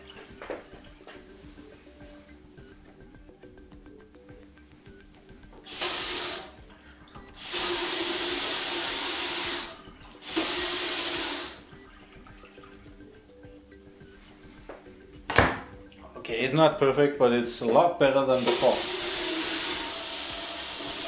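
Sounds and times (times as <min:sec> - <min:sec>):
tap water running into steel sink: 0:05.7 - 0:06.6, 0:07.4 - 0:12.6, 0:18.4 - 0:21.0.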